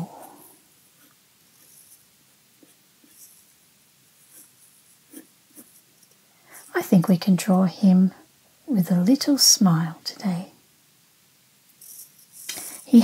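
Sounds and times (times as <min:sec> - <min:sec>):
pencil scratching on paper: 0:01.0 - 0:03.5, 0:04.2 - 0:05.9.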